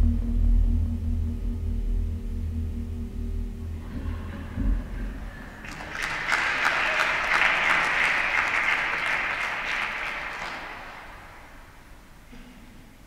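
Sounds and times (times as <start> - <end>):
audience applauding: 4.0 - 11.9.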